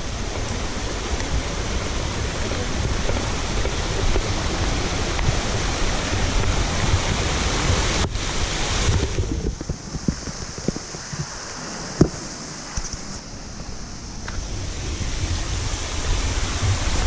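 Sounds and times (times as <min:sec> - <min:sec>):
waterfall rushing: 0:00.0 - 0:17.0
wind rumbling on microphone: 0:00.0 - 0:17.0.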